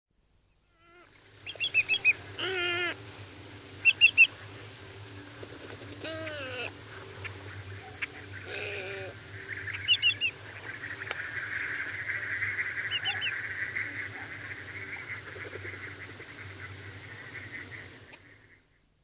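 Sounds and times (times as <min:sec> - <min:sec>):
shorebird whistled calls: 0:01.5 - 0:03.0, 0:03.8 - 0:04.3, 0:09.7 - 0:10.4
heron hoarse croak: 0:08.1 - 0:09.2.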